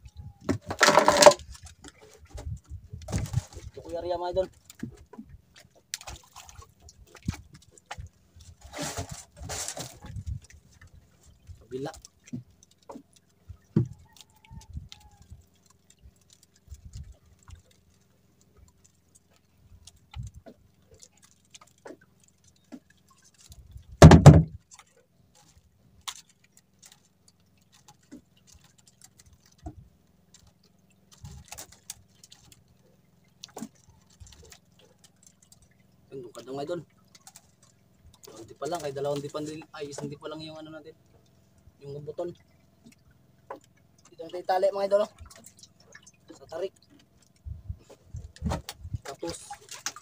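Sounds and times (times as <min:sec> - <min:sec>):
loud thump: 0:24.0 - 0:24.6.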